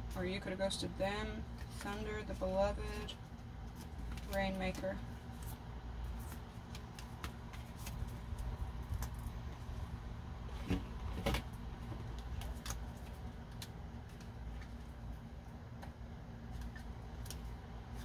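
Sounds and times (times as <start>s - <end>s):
steady low hum: 0.0s - 18.0s
cards clicking and tapping: 6.2s - 9.2s, 12.0s - 14.9s.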